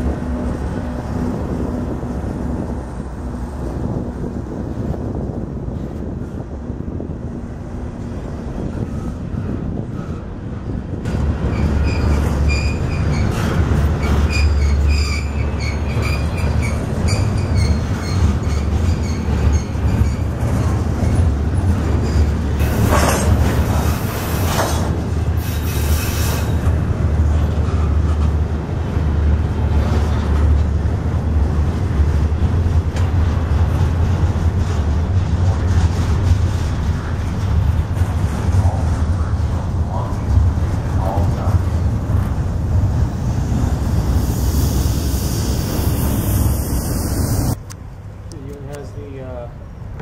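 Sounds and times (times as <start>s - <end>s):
freight train wheels rumbling on rail: 0.0s - 50.0s
high wheel squeals: 11.4s - 20.4s.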